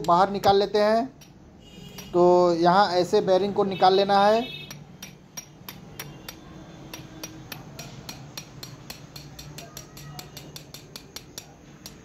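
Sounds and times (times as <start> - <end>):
metal-on-metal taps: 1.2 - 2.2, 4.7 - 12.0.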